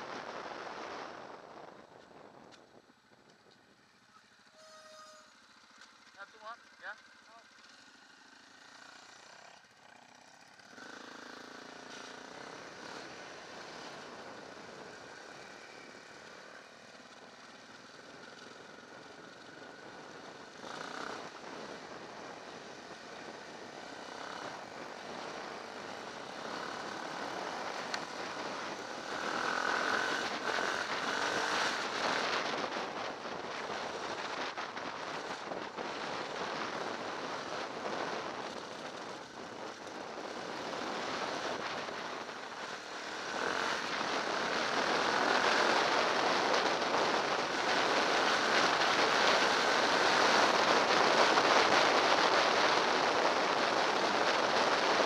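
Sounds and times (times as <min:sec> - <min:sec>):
motorcycle engine running: 0:00.1 - 0:55.0
wind noise: 0:43.4 - 0:55.0.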